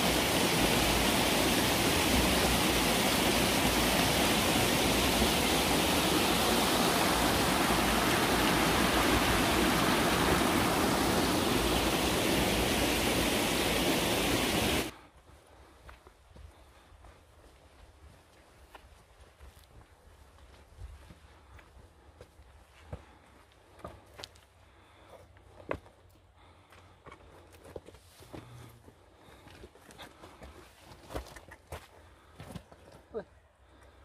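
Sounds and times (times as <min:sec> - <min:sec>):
stream rushing over stones: 0:00.0 - 0:14.9.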